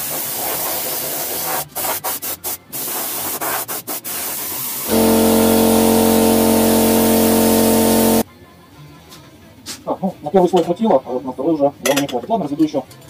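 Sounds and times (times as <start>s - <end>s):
loud steady multi-pitch hum: 4.9s - 8.2s.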